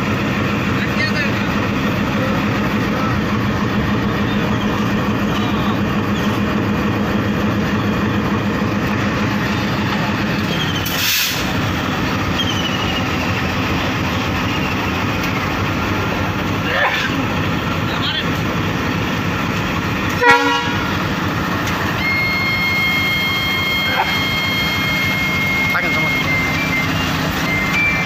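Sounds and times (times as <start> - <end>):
diesel locomotive idling: 0.0 - 28.0.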